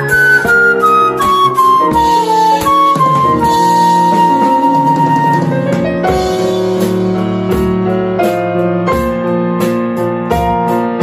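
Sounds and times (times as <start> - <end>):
flute long note: 0.0 - 5.7
drum kit: 0.0 - 11.0
piano chords: 0.0 - 11.0.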